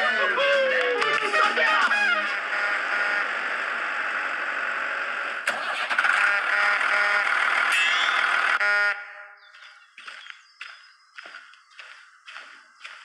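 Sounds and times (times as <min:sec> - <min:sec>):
engine running: 0:00.0 - 0:10.2.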